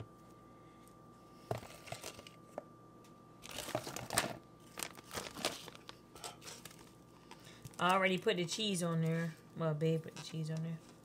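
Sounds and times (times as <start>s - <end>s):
plastic packaging crinkling: 3.4s - 11.0s.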